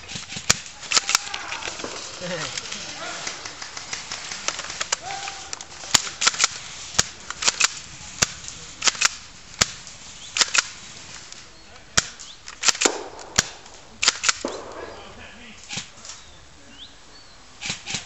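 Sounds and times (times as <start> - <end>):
airsoft gun shots: 12.0 - 15.1.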